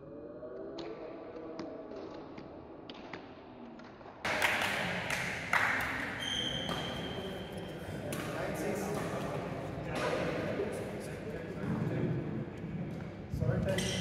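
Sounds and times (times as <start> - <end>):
shoe squeak on floor: 6.2 - 7.6.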